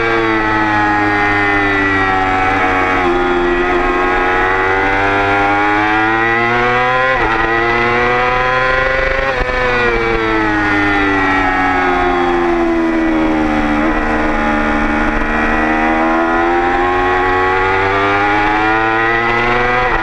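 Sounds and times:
motorcycle engine at high revs: 0.0s - 20.0s.

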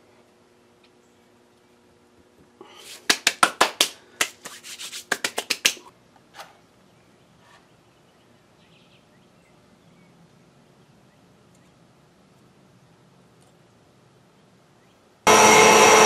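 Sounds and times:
hands slapping together: 2.9s - 5.9s.

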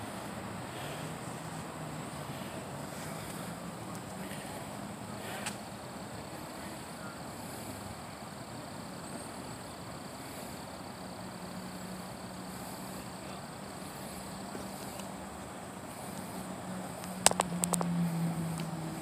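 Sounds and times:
insects calling in high pulses: 0.0s - 19.0s
steady background noise: 0.0s - 19.0s.

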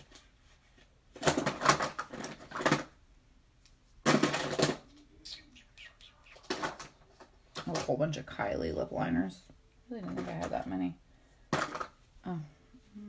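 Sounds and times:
makeup pencils clattering: 1.1s - 3.0s, 4.0s - 5.0s, 6.4s - 8.3s, 10.0s - 12.0s.

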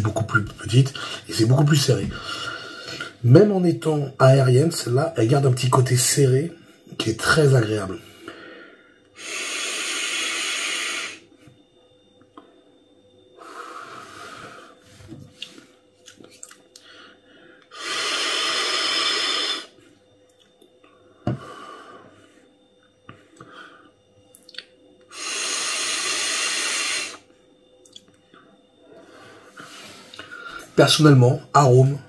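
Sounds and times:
vape drag airy hiss: 9.2s - 11.2s, 17.7s - 19.7s, 25.1s - 27.2s.

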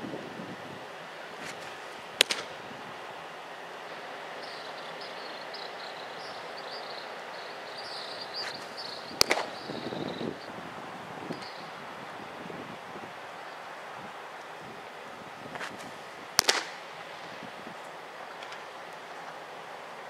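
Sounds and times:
outdoor air noise: 0.0s - 20.0s
baseball popping into leather glove: 1.4s - 2.5s, 9.2s - 9.6s
high chirping: 3.8s - 10.5s, 11.2s - 11.8s.

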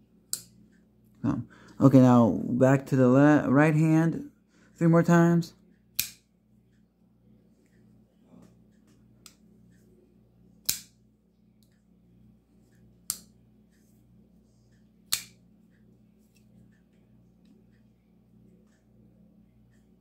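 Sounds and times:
faint knife folding clicks: 15.1s - 15.4s.

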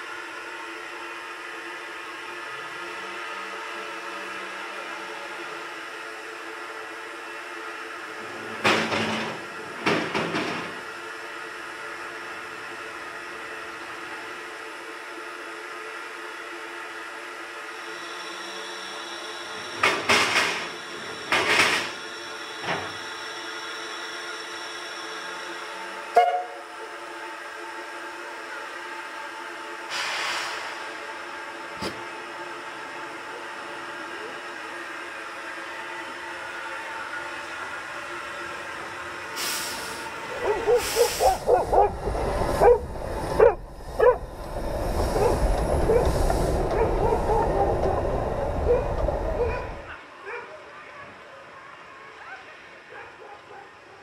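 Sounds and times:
steam locomotive hiss and hum: 0.0s - 54.0s
bursts of escaping steam: 29.9s - 31.0s, 39.3s - 48.0s.

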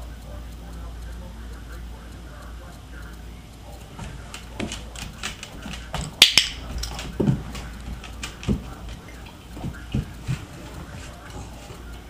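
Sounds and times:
puppy claws tapping on tile: 3.8s - 12.0s.

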